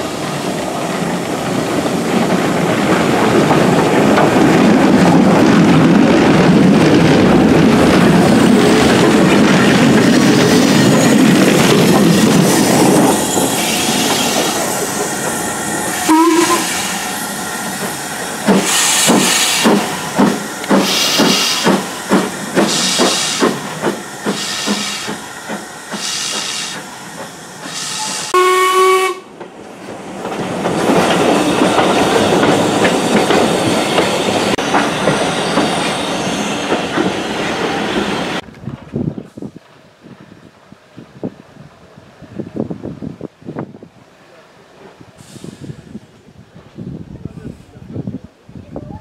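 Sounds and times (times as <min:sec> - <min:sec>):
steam locomotive exhaust beats: 0:00.0 - 0:29.6
steam locomotive whistle: 0:16.0 - 0:17.1, 0:20.8 - 0:21.8, 0:27.6 - 0:29.3.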